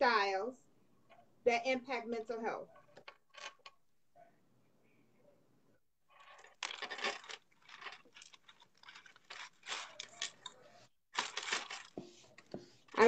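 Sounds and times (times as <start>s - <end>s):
handling noise crackles: 6.1s - 13.0s.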